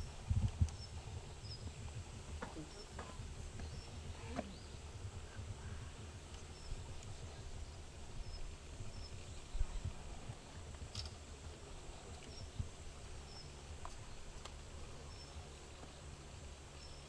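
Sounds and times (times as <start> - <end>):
wind rumble on microphone: 0.0 - 16.7.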